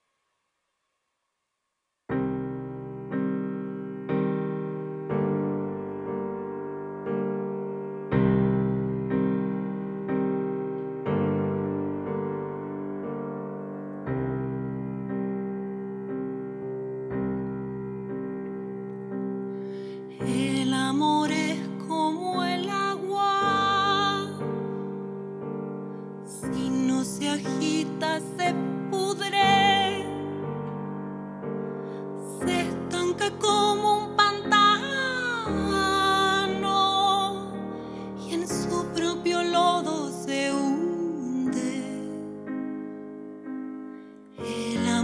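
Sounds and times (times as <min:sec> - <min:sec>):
slow piano chords: 0:02.1 - 0:45.0
woman singing: 0:20.2 - 0:24.7, 0:26.3 - 0:30.6, 0:32.2 - 0:42.5, 0:44.4 - 0:45.0.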